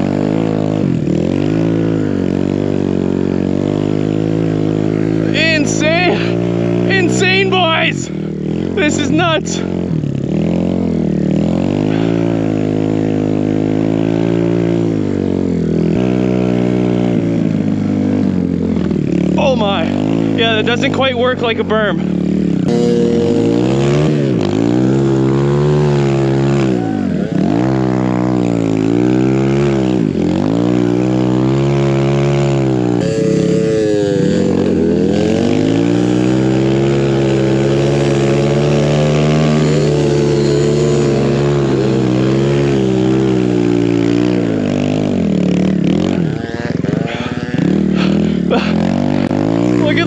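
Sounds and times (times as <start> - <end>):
dirt bike engine revving: 0.0 - 50.0.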